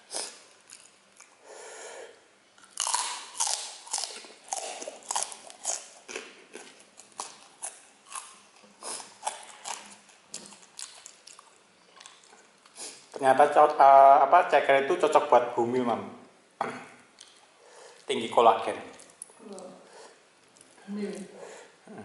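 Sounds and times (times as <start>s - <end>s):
crunchy chewing: 0.0s - 1.4s, 2.6s - 13.1s.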